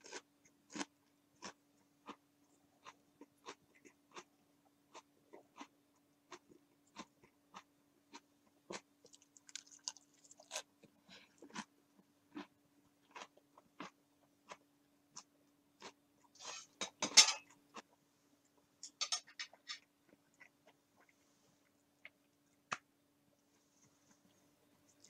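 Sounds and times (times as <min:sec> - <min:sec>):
person chewing crunchy food: 0:00.0 - 0:16.8, 0:19.5 - 0:22.8.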